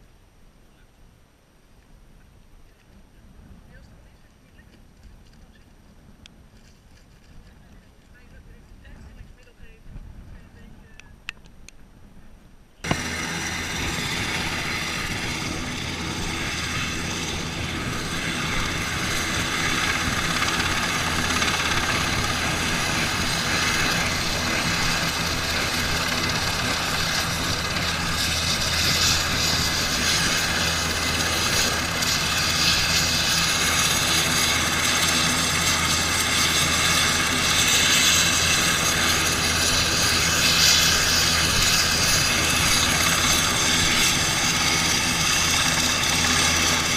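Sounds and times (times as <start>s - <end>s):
helicopter rotor noise: 12.8s - 46.9s
helicopter turbine whine: 12.8s - 46.9s.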